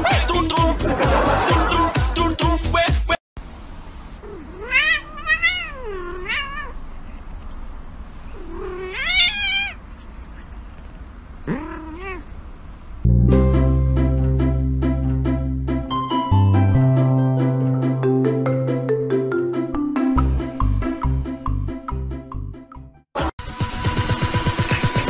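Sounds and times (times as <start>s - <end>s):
music: 0.0s - 3.2s, 13.1s - 25.0s
cat yowling: 4.2s - 6.8s, 8.3s - 9.8s, 11.4s - 12.3s.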